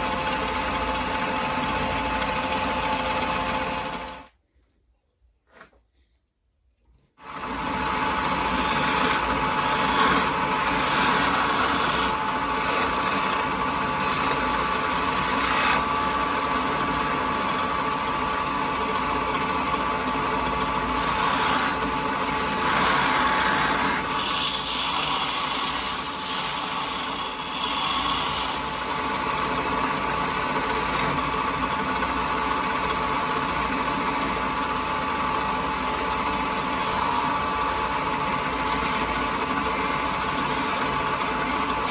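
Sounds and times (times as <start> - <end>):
chisel cutting spinning wood: 0.0 - 4.3, 7.2 - 41.9
lathe motor hum: 0.0 - 4.3, 7.3 - 41.9.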